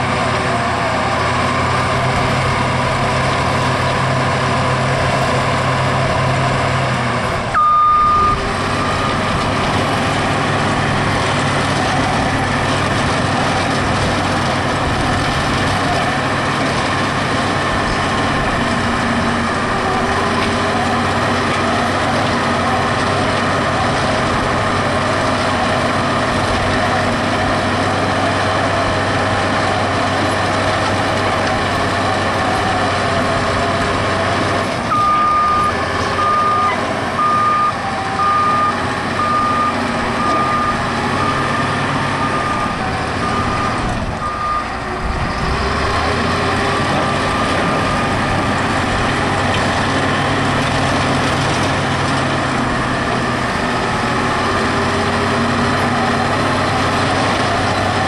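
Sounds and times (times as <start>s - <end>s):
diesel engine running: 0.0s - 58.0s
reversing alarm beeps: 7.5s - 9.2s, 34.9s - 44.8s.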